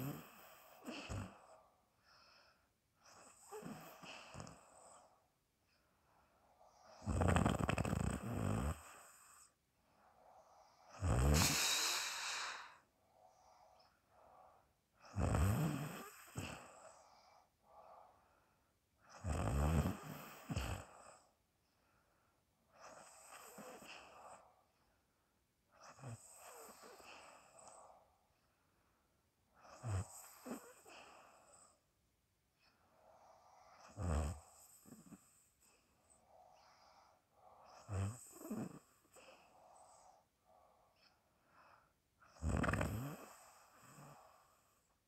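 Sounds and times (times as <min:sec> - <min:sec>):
person snoring: 0:00.0 - 0:01.6, 0:03.0 - 0:05.1, 0:06.7 - 0:09.5, 0:10.4 - 0:13.6, 0:15.0 - 0:17.4, 0:19.1 - 0:21.3, 0:29.6 - 0:31.8, 0:33.2 - 0:40.2, 0:42.3 - 0:44.6.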